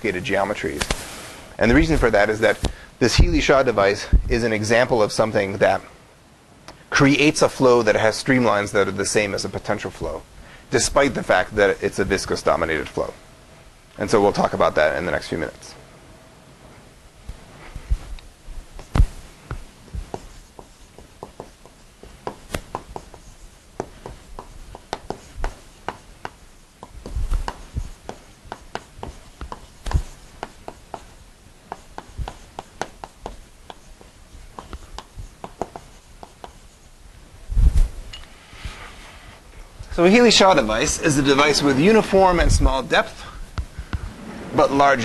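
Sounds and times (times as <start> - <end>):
chalk knocks: 18.8 - 36.9
chalk writing on blackboard: 18.8 - 37.0.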